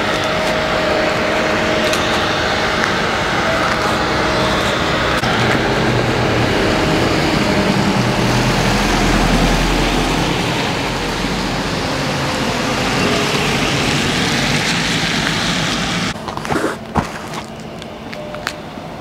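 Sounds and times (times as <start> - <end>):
motor engine rumbling: 0.0 - 19.0.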